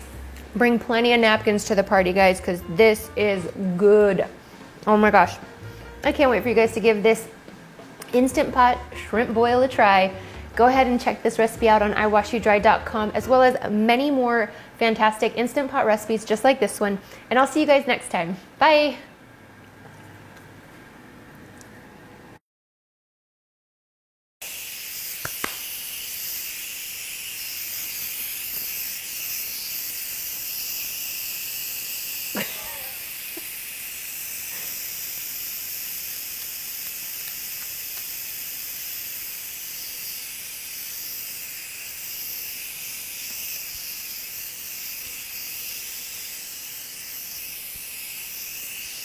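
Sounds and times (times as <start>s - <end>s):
pressure cooker steam hiss: 24.4s - 49.0s.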